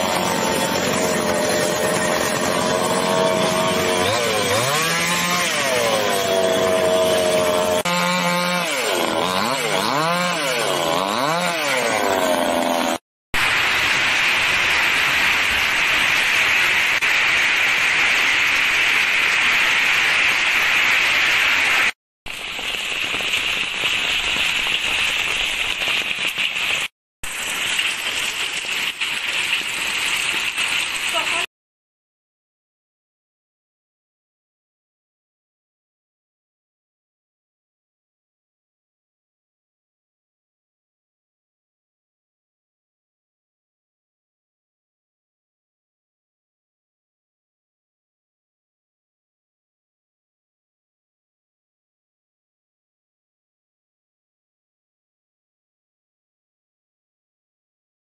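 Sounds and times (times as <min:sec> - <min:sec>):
chainsaw revving: 0:00.0 - 0:13.0.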